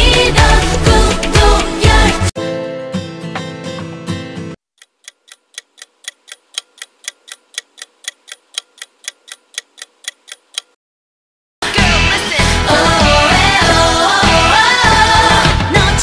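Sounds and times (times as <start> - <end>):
music: 0.0 - 4.6, 11.6 - 16.0
clock ticking: 4.8 - 10.8.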